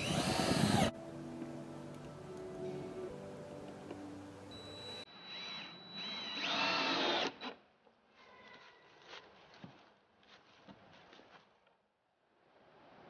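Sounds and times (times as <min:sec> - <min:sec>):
cordless drill driving into wood: 0:00.0 - 0:00.9, 0:05.4 - 0:07.6.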